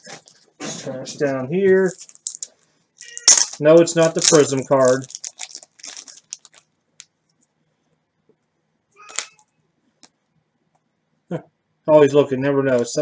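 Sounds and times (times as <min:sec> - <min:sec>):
crinkly rustle: 0:01.7 - 0:06.7.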